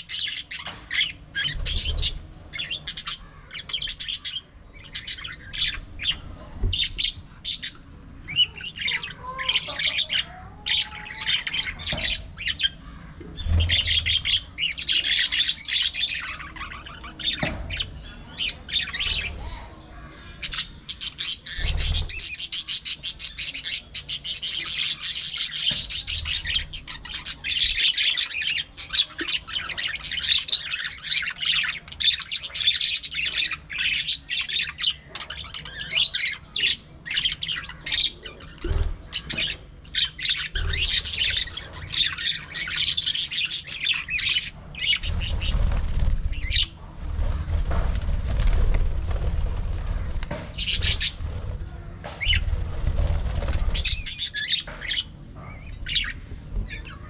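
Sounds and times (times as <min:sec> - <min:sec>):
budgerigars chattering: 0:20.2 - 0:46.8, 0:47.8 - 0:55.1.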